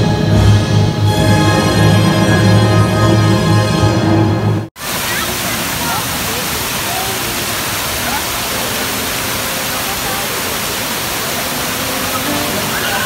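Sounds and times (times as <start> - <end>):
faint voices chattering: 4.8 - 13.0
water spilling over stone wall: 4.8 - 13.0.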